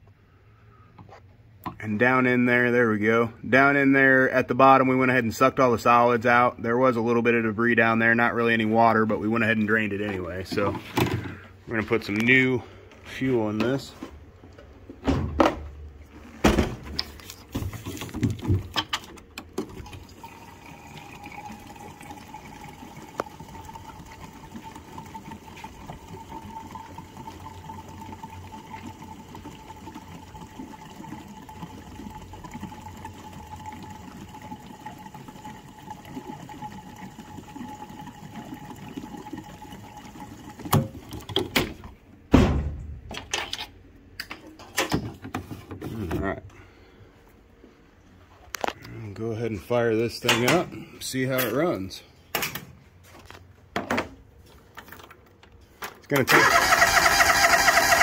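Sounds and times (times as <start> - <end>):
gasoline pouring into tank: 16.0 - 42.0, 56.2 - 58.0
gas can knocking and clunking: 16.5 - 20.0, 40.5 - 43.6.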